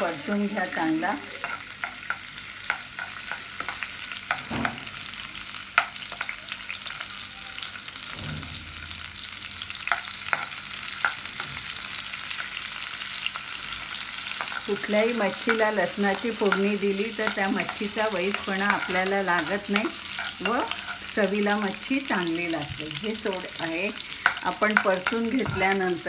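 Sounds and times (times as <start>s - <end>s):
garlic sizzling in hot oil: 0.0s - 26.0s
steel spoon scraping a pan: 0.8s - 4.8s, 9.8s - 11.7s, 13.9s - 25.9s.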